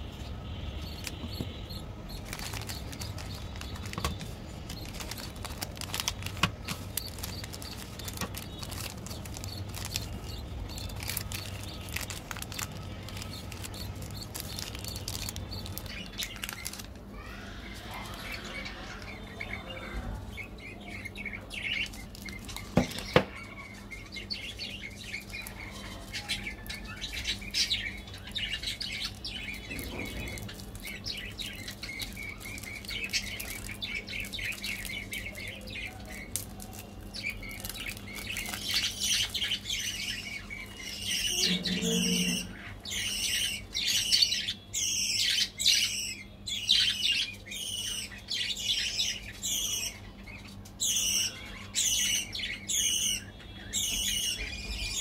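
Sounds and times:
birds chirping: 0:00.0 - 0:55.0
wrappers crinkling: 0:01.0 - 0:17.1, 0:21.6 - 0:23.4, 0:24.9 - 0:42.3.

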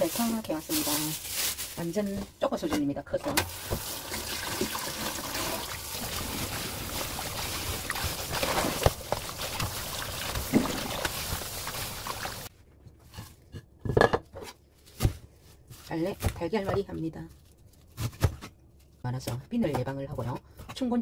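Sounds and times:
tap water running into sink: 0:03.4 - 0:12.5.

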